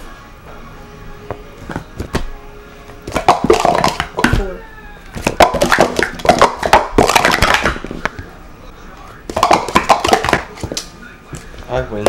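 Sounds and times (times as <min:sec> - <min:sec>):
plastic cups clattering: 0:03.0 - 0:04.6, 0:05.2 - 0:08.2, 0:09.3 - 0:10.9.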